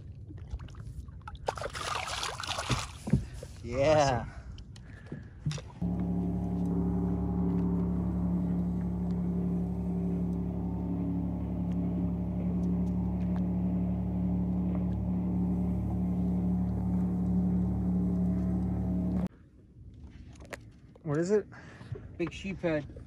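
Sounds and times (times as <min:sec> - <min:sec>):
boat engine humming: 0:05.8 - 0:19.3.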